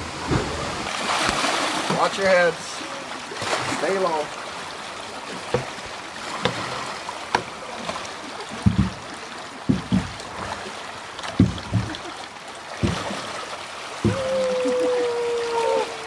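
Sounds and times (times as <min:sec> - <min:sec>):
fast water rushing: 0:00.0 - 0:16.0
short dull knocks: 0:05.4 - 0:05.8, 0:07.3 - 0:07.6, 0:08.6 - 0:09.0, 0:09.7 - 0:10.2, 0:11.4 - 0:12.0, 0:12.8 - 0:13.2, 0:14.0 - 0:14.3.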